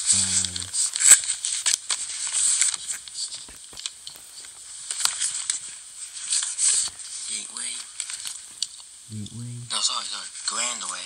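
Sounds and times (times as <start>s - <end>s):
person speaking: 0.0s - 0.8s, 9.1s - 9.8s
steady hiss: 0.0s - 11.0s.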